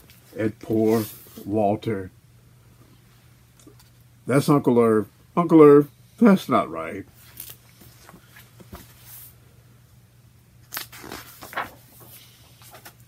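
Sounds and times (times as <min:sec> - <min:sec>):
book pages rustling: 0:07.2 - 0:09.3, 0:10.7 - 0:13.0.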